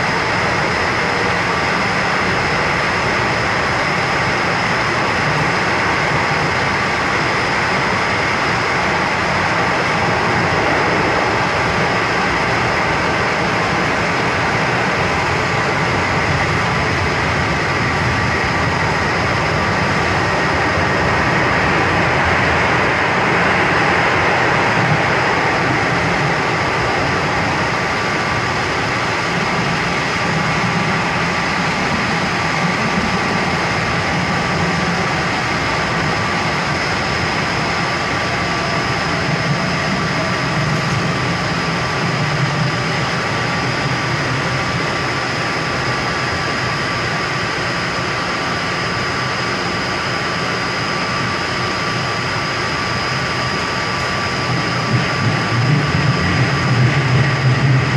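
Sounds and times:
constant high whine: 0.0 - 57.9
train wheels rumbling on rails: 0.0 - 57.9
passing train rushing by: 7.7 - 15.1.

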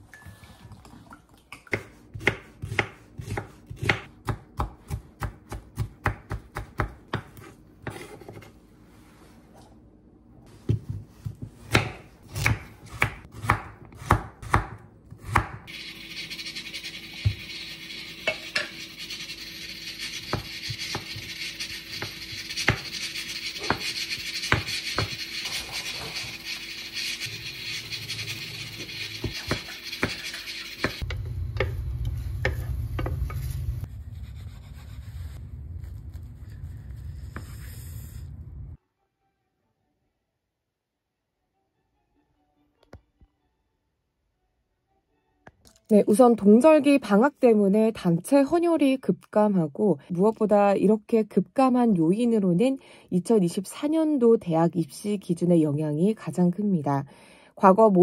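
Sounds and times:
knife chopping on wooden board: 1.7 - 8.4, 10.6 - 15.6, 23.6 - 25.2.

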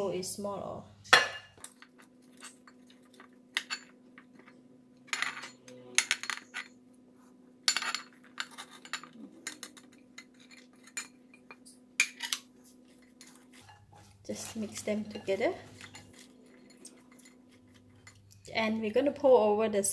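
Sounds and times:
spatula scraping a plate: 12.1 - 18.2.

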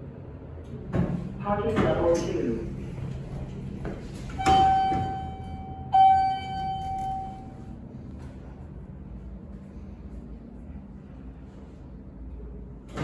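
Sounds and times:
elevator arrival chime: 4.0 - 7.9.

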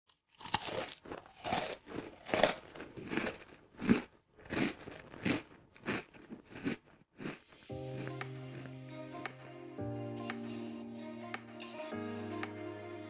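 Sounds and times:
person chewing crunchy food: 0.1 - 8.8.

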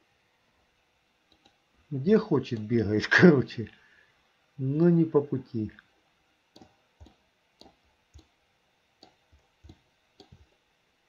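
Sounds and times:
computer mouse clicking: 1.3 - 1.6, 6.5 - 8.4, 9.0 - 10.6.

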